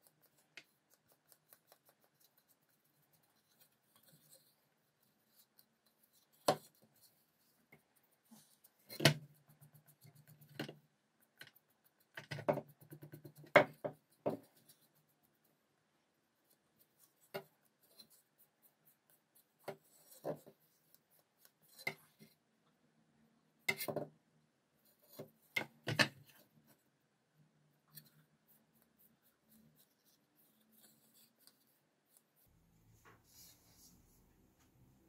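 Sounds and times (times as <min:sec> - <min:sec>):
paintbrush brushing on wood: 0:28.0 - 0:34.3.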